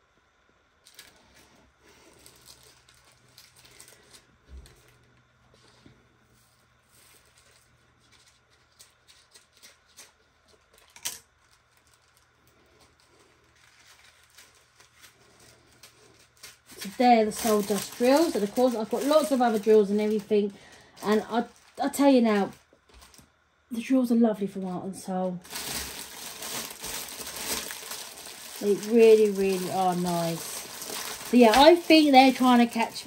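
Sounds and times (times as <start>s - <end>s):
plastic bags crinkling: 0.8s - 5.8s, 6.8s - 23.4s, 25.2s - 33.0s.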